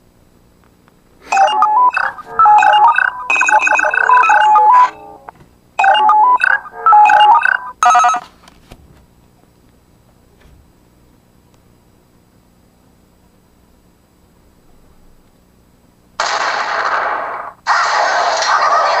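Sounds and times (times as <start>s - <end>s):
electronic jingle and beeps: 1.3s - 8.2s.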